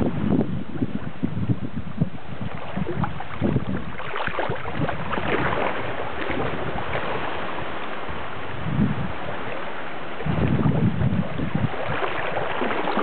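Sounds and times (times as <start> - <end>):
wind buffeting microphone: 0.0 - 13.0
water splashing around wading legs: 2.4 - 8.5, 9.2 - 13.0.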